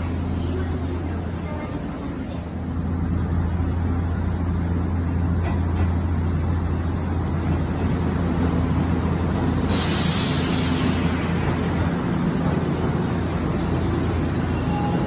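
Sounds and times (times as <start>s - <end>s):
electric train rumbling: 0.0s - 15.0s
hiss: 9.1s - 14.5s.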